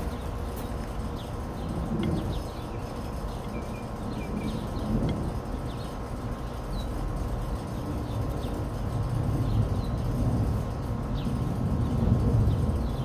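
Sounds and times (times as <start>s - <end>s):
bird chirps: 0.0s - 8.7s.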